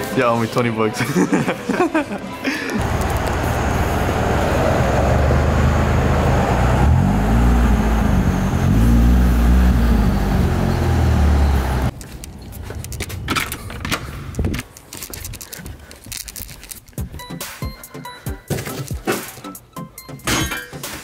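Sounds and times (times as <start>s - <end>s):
car engine revving: 2.8s - 11.9s
light clicks and rustling: 11.9s - 16.9s.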